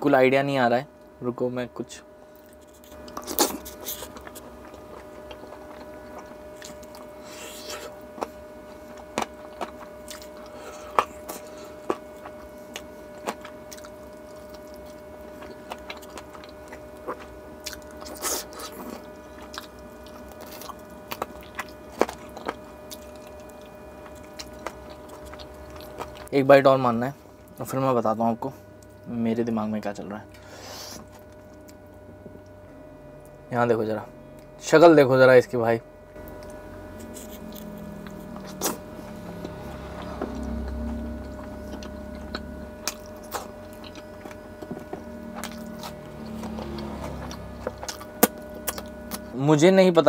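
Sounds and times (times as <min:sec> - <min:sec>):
steady hum: 0:00.0 - 0:50.0
close-miked chewing: 0:02.4 - 0:26.3, 0:36.2 - 0:49.4.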